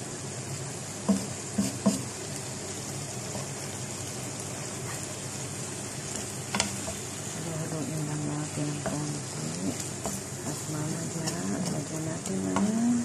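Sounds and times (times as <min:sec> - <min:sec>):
chicken sizzling in frying pan: 0:00.0 - 0:13.0
wooden spatula knocking pan: 0:01.1 - 0:02.1, 0:11.2 - 0:12.8.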